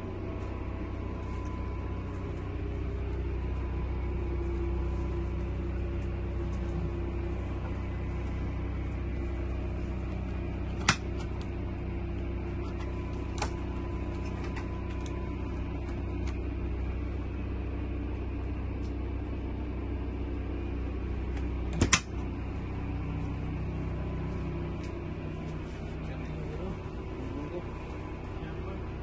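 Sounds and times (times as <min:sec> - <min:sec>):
steady low hum: 0:00.0 - 0:29.0
refrigerator door shutting: 0:21.7 - 0:22.2
refrigerator door latch clicking: 0:21.8 - 0:22.1.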